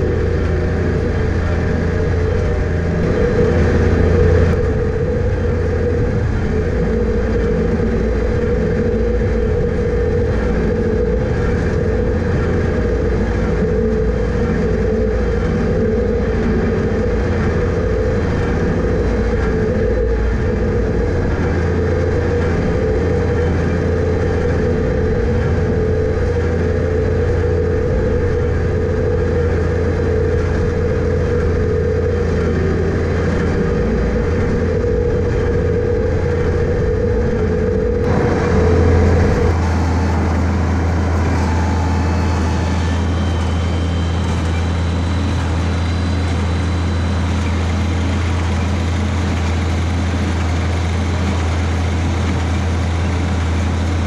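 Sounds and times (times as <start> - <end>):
hay baler running: 0.0 - 54.0
tractor engine running: 0.0 - 54.0.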